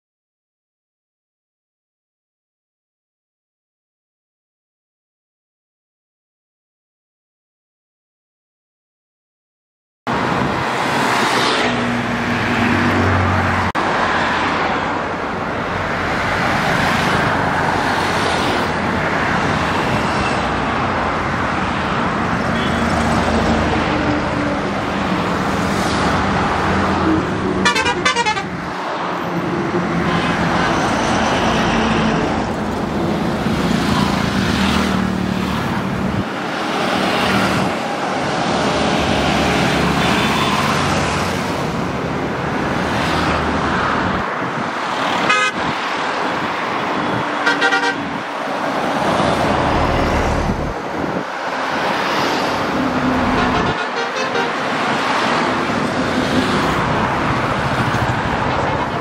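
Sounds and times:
tyres on the road: 10.1 - 59.0
vehicle horns honking: 22.5 - 23.0, 27.6 - 28.6, 45.2 - 45.6, 47.4 - 48.2, 53.2 - 54.7
tractor and car engines: 29.2 - 45.4, 46.0 - 59.0.

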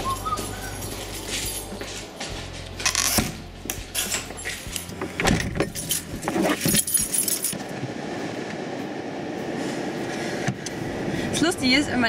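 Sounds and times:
keys jangling: 0.0 - 2.2, 3.9 - 7.6.

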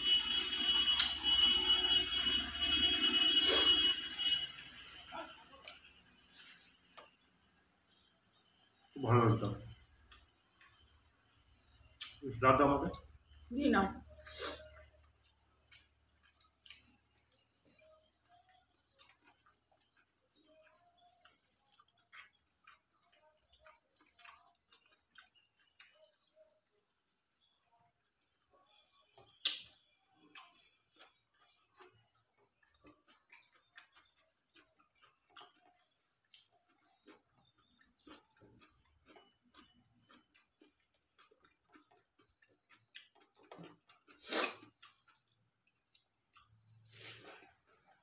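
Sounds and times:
people chewing and lip smacking: 0.0 - 48.0
fingers mixing rice on plates: 14.0 - 27.6, 29.2 - 48.0.

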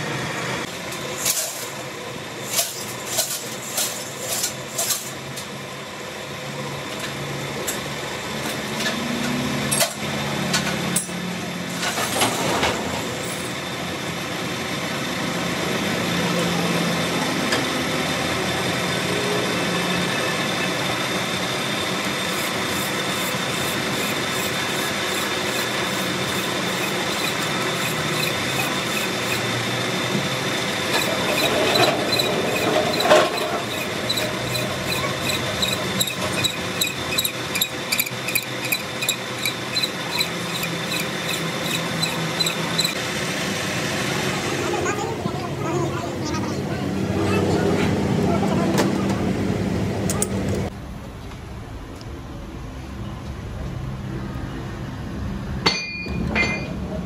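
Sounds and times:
metal lathe running: 13.0 - 44.6.

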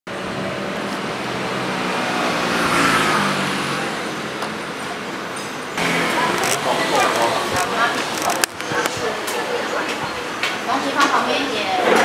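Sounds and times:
street traffic: 0.1 - 12.0
vehicle passing close: 0.2 - 5.2, 5.8 - 8.2.

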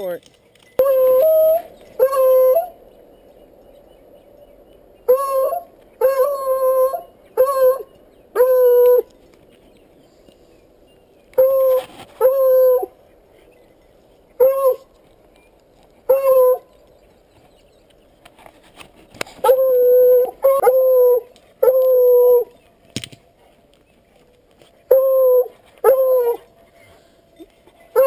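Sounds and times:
hound baying: 0.8 - 2.8, 5.1 - 9.1, 16.1 - 16.7, 24.9 - 26.6.

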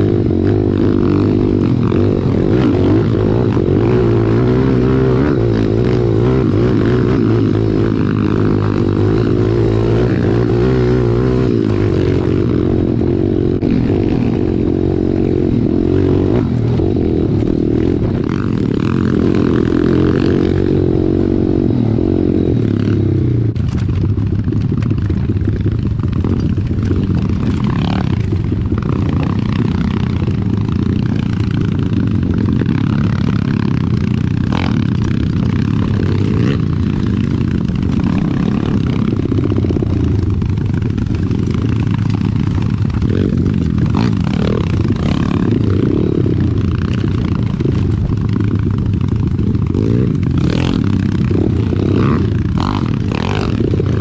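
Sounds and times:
pit bike engine revving: 0.0 - 54.0
bike rattling and knocking: 22.6 - 54.0.

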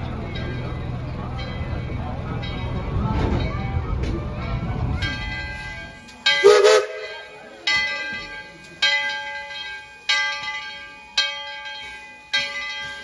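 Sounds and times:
locomotive bell ringing: 0.0 - 13.0.

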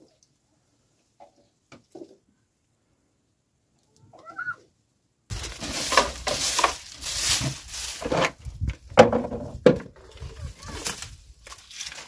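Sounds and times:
dry straw rustling and crunching: 5.3 - 12.0.

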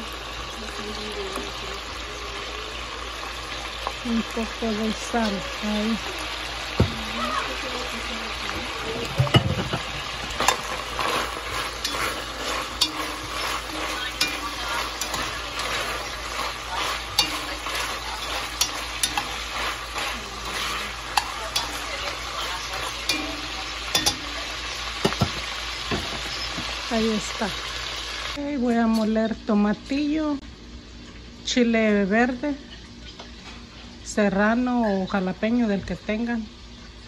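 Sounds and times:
meat sizzling in a pot: 0.0 - 37.0
metal tongs clicking and scraping: 10.4 - 24.5.

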